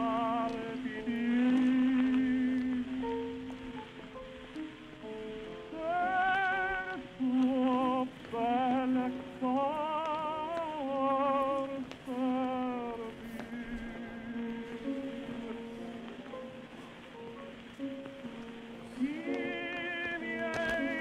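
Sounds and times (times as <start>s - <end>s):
opera singer with vibrato: 0.0s - 3.8s, 5.7s - 16.2s, 18.8s - 21.0s.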